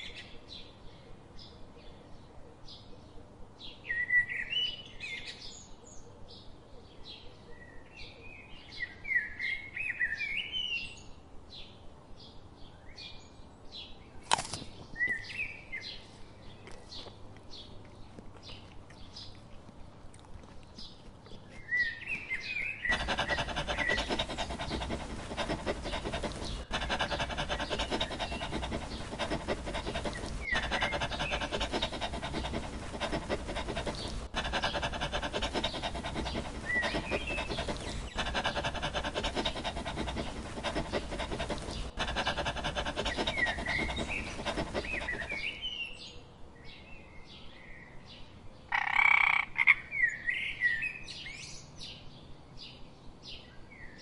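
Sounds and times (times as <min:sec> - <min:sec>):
dog panting rapidly: 0:20.2 - 0:45.7
birds chirping: 0:20.6 - 0:45.8.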